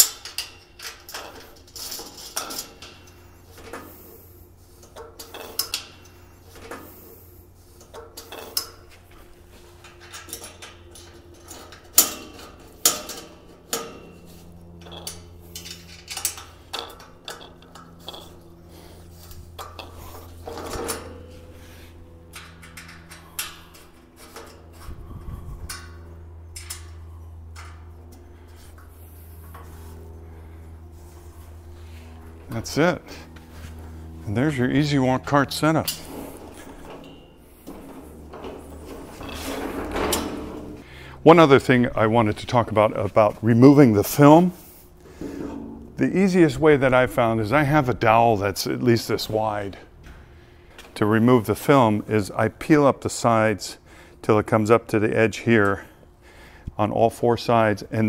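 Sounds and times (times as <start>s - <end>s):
allen key clinking on metal: 0.0s - 3.8s, 9.8s - 18.6s.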